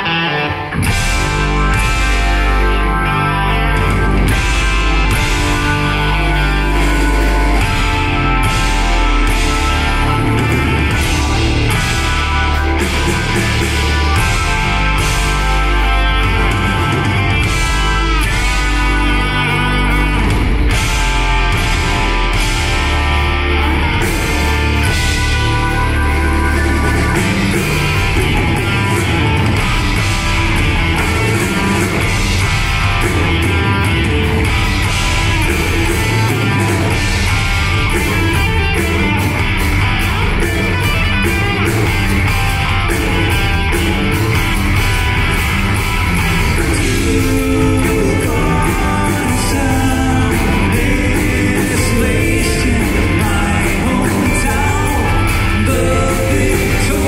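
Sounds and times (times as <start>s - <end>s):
rock band playing live: 0.0s - 57.0s
person singing: 46.1s - 57.0s.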